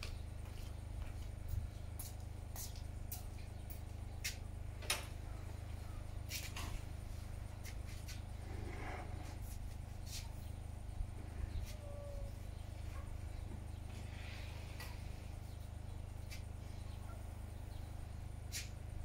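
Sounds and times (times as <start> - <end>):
sandal footsteps on concrete: 0.0 - 4.5
steady low hum: 0.0 - 19.0.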